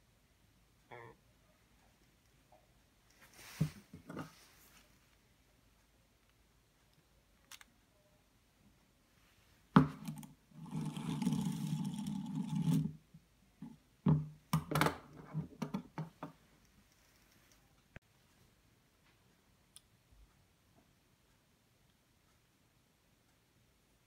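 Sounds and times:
plastic parts clicking: 6.9 - 7.7
spinning top rattling whir: 10.1 - 13.0.

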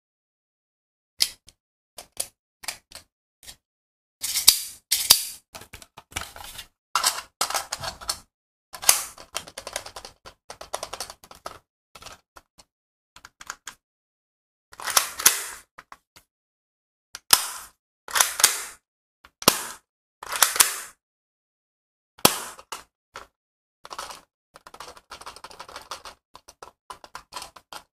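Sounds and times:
plastic pistol clicks and rattles: 4.4 - 6.0, 8.8 - 9.4, 14.8 - 15.7, 20.3 - 21.0.

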